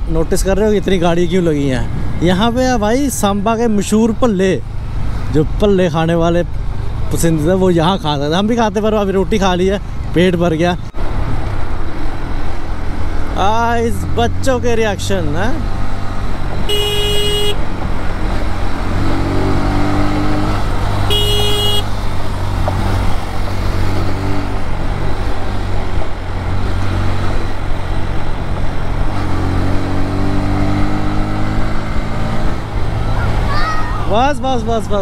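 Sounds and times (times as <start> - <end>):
motorcycle engine accelerating: 15.7 - 33.5
short horn beep: 16.7 - 17.6, 21.1 - 21.9.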